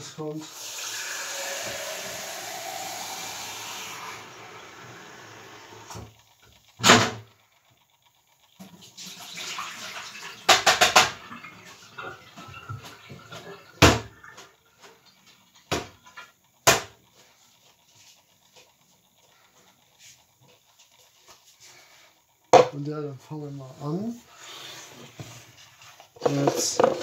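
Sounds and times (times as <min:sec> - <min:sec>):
knocks and clunks at sink: 0:10.5 - 0:11.3, 0:12.4 - 0:14.5, 0:15.7 - 0:16.0, 0:22.5 - 0:22.8.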